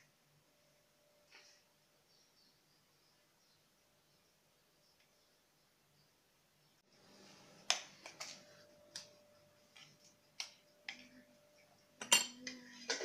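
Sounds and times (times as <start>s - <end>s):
faint steady tone: 8.3s - 12.9s.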